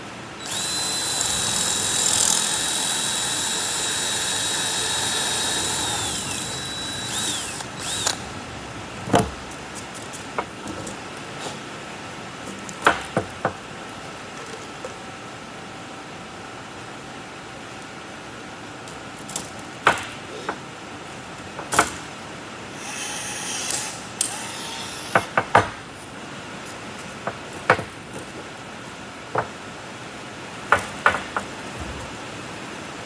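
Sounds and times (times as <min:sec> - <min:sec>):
rivet tool motor whir: 0:00.4 - 0:08.2, 0:22.8 - 0:25.3.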